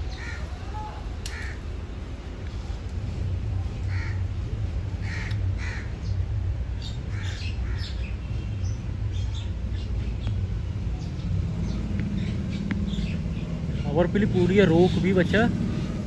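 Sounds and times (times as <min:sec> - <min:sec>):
steady low rumble: 0:00.0 - 0:16.0
crows cawing: 0:00.1 - 0:00.5, 0:01.3 - 0:01.6, 0:03.9 - 0:04.3, 0:05.0 - 0:06.2, 0:07.1 - 0:08.1.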